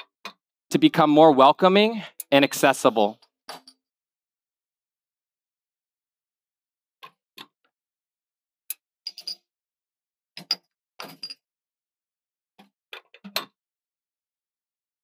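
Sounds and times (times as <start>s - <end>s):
metal and glassware clinking: 9.1s - 9.4s.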